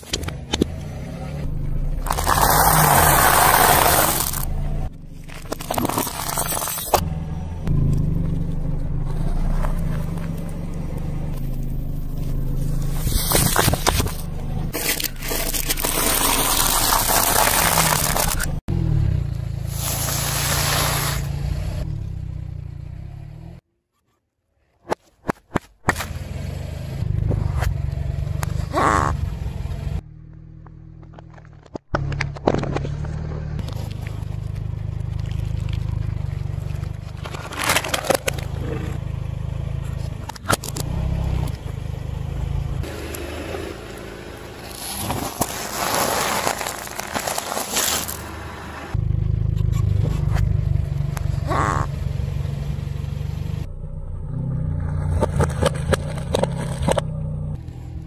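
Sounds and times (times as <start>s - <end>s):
low rumble of car: 0.0s - 23.6s, 25.9s - 47.4s, 48.1s - 58.0s
objects crunching under car tyre: 2.0s - 18.7s, 31.0s - 39.0s, 44.5s - 49.0s.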